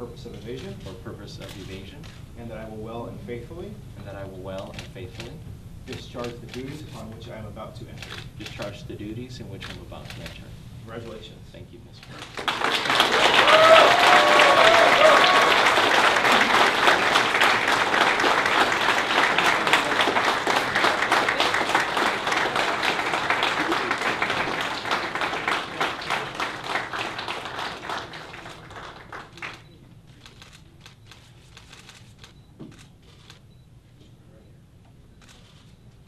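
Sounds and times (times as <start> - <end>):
audience applauding: 12.2 - 30.5.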